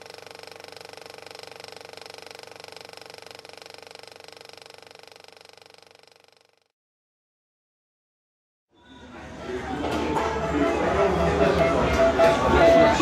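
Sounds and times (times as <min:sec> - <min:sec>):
rapid mechanical clatter: 0:00.0 - 0:06.7.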